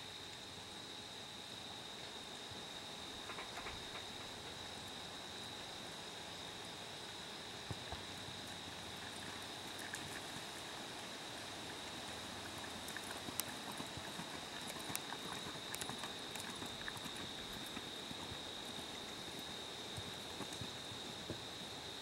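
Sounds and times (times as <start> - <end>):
steady high-pitched whine: 0.0 - 22.0
hoofbeats on dirt: 12.6 - 21.7.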